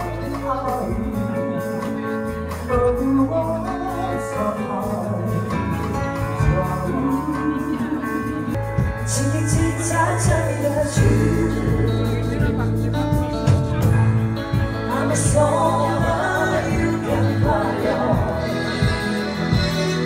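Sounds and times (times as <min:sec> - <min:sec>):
bass line: 0:00.0 - 0:20.0
electric guitar: 0:00.0 - 0:20.0
keyboard: 0:00.0 - 0:20.0
people singing: 0:06.4 - 0:12.7, 0:14.8 - 0:20.0.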